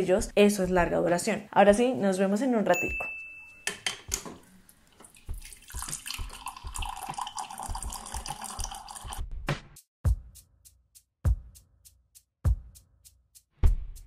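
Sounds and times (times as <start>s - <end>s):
water pouring into a mug: 4.8s - 9.2s.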